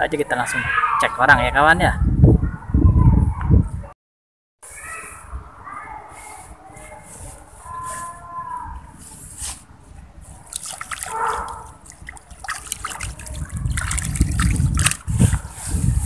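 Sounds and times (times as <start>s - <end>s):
water splashing and trickling through net: 10.3s - 15.4s.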